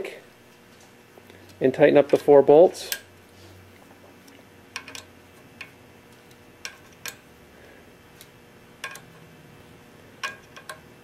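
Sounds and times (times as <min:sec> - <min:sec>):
wrench clicking on bolts: 0:04.8 - 0:05.8, 0:08.2 - 0:09.2, 0:10.2 - 0:10.9.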